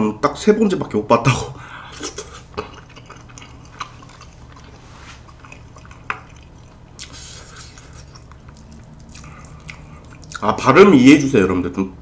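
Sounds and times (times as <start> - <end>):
low steady hum: 0.0 - 12.0
wet mouth eating sounds: 1.9 - 10.7.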